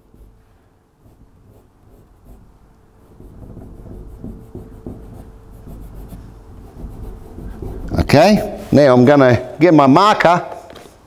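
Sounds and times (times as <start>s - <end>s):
fingertip rubbing whiteboard: 0.0s - 8.8s.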